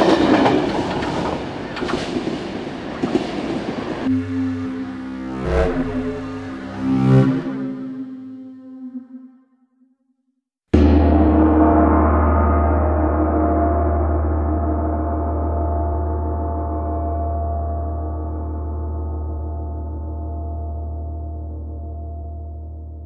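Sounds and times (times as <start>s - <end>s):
gong ringing: 4.0s - 8.6s, 10.8s - 23.0s.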